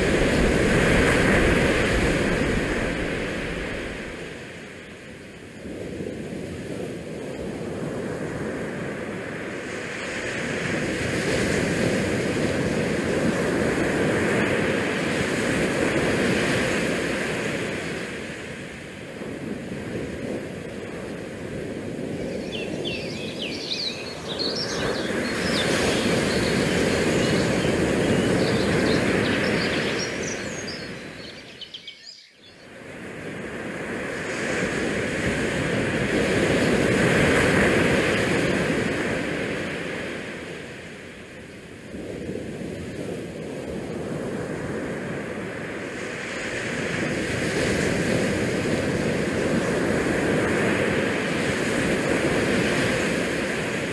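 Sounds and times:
wind buffeting microphone: 0.0s - 4.6s, 5.6s - 32.0s.

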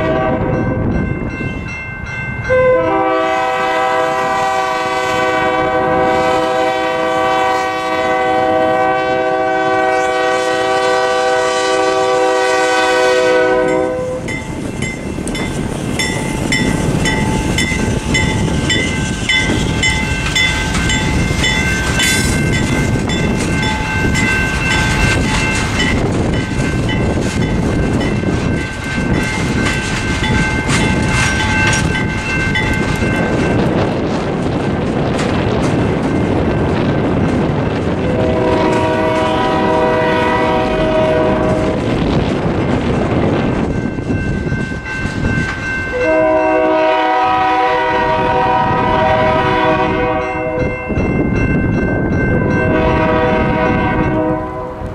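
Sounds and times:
locomotive horn blowing: 0.0s - 0.8s, 2.5s - 14.3s, 38.0s - 41.9s, 45.9s - 50.7s, 52.6s - 54.9s
crossing bells dinging: 0.0s - 4.2s, 10.6s - 37.6s, 38.2s - 54.9s
train wheels clattering on rails: 0.0s - 54.9s.

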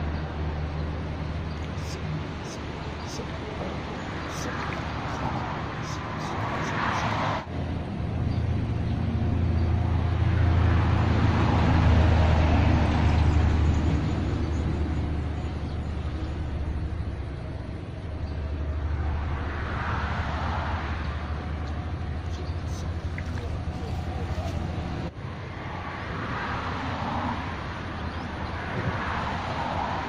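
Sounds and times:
vehicles passing: 0.0s - 30.0s.

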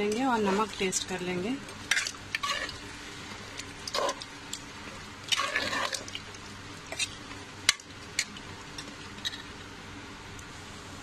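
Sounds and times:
spoon stirring wet rice: 3.4s - 9.5s.

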